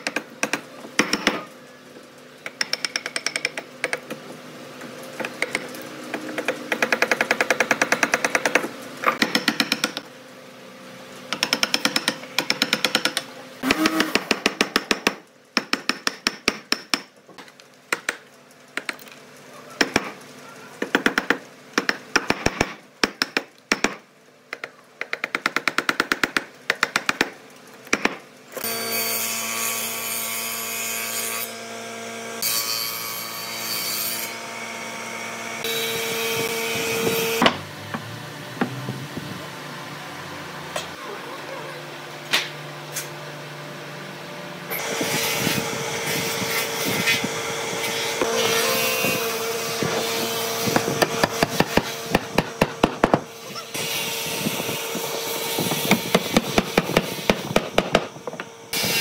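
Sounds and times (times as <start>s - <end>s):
mallet striking chisel: 0.0s - 1.5s, 2.4s - 4.2s, 5.2s - 10.0s.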